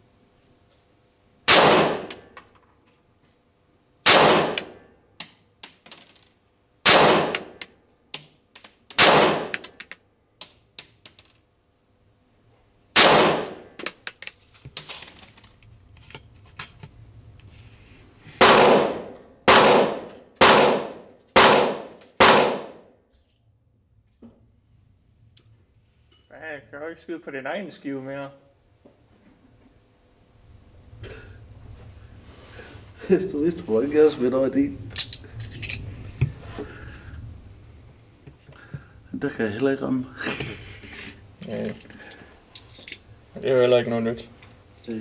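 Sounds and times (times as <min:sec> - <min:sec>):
pistol shots with ringing echo: 0:01.5 - 0:02.2, 0:04.0 - 0:04.8, 0:06.8 - 0:07.6, 0:09.0 - 0:09.6, 0:13.0 - 0:13.7, 0:18.4 - 0:22.9
light metallic clicks and clinks: 0:26.1 - 0:26.3.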